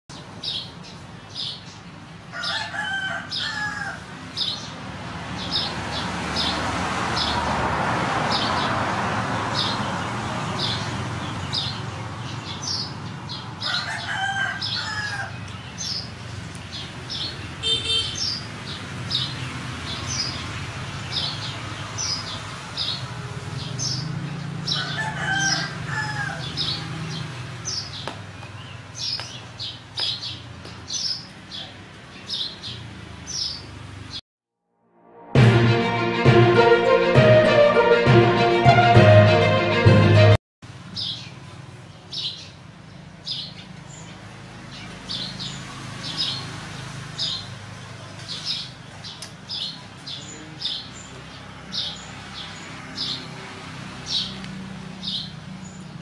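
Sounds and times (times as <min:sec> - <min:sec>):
rooster crowing: 0:02.3 - 0:04.2, 0:13.6 - 0:15.4, 0:24.6 - 0:27.0.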